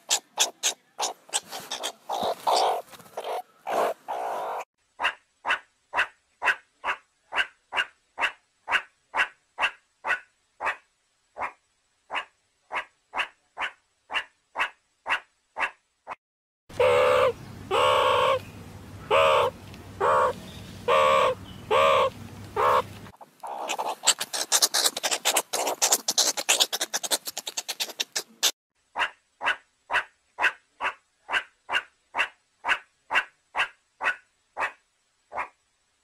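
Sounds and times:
meerkat chattering clicks: 0:00.0 - 0:04.6, 0:21.2 - 0:28.5
meerkat barking calls: 0:00.0 - 0:10.8, 0:11.4 - 0:15.8, 0:16.7 - 0:18.4, 0:19.1 - 0:35.6
meerkat harsh drawn-out calls: 0:00.0 - 0:10.8, 0:11.4 - 0:15.8, 0:16.7 - 0:18.4, 0:19.1 - 0:35.6.

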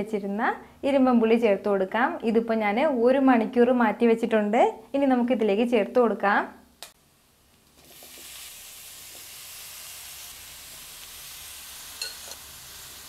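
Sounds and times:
food sizzling in hot oil: 0:07.7 - 0:13.0.

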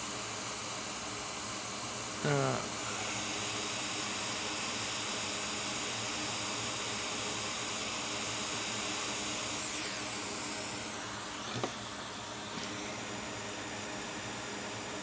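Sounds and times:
hot air blower hissing: 0:00.0 - 0:15.0.

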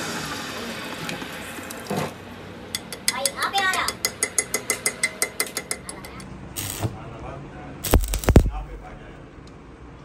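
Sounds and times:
arc welder crackling hiss: 0:06.6 - 0:07.0, 0:07.8 - 0:08.7.

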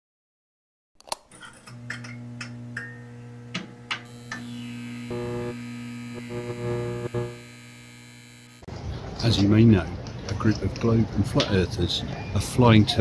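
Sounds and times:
neon sign electrical hum: 0:01.6 - 0:08.7
high buzz: 0:02.6 - 0:08.7.

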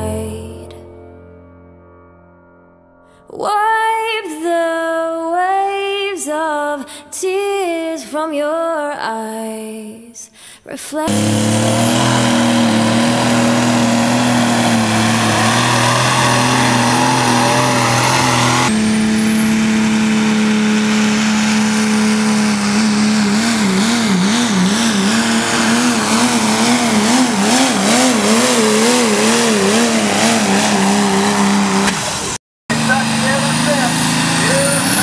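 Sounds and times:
pickup truck engine at full throttle: 0:11.1 - 0:35.0
pulling tractor engine at full throttle: 0:11.1 - 0:35.0.

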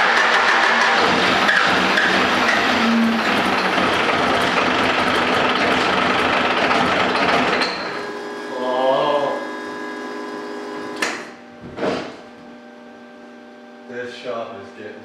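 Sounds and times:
diesel engine running: 0:00.0 - 0:11.5
sharp click: 0:11.0 - 0:11.2
short scuff: 0:11.1 - 0:12.4.

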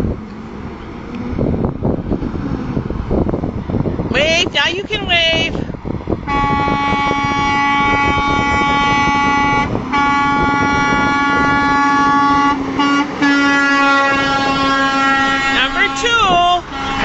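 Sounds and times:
truck engines: 0:00.0 - 0:17.0
truck air horn blaring: 0:06.2 - 0:17.0.

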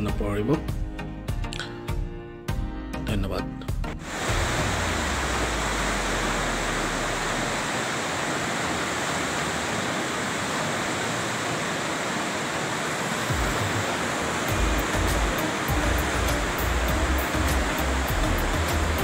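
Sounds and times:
river rapids rushing over rocks: 0:04.0 - 0:19.0
low rumble: 0:04.1 - 0:07.7.

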